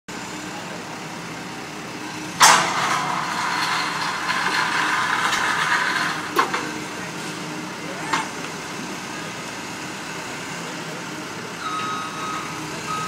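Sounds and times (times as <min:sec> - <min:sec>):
diesel engine running: 0:00.1 - 0:13.0
loud rush of noise: 0:02.4 - 0:07.6.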